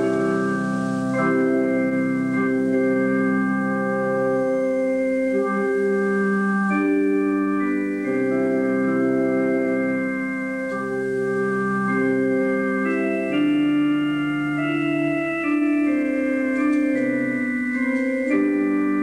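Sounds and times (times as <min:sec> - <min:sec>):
organ chords: 0:00.0 - 0:19.0.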